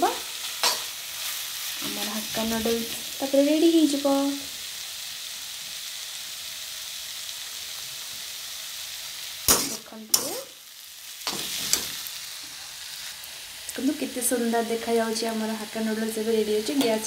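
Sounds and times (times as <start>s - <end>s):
noodles sizzling in a wok: 0.0s - 17.0s
spatula scraping a wok: 11.2s - 12.8s.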